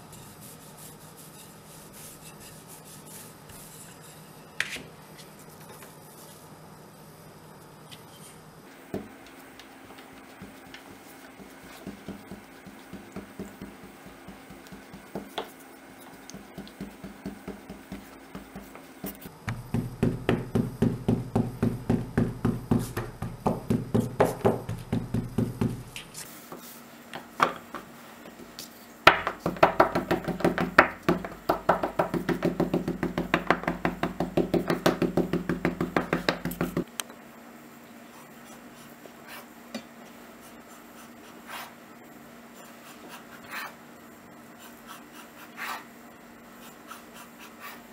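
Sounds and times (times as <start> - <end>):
pointed tool tapping dough on board: 8.9 - 15.5, 16.3 - 26.0, 29.1 - 36.9.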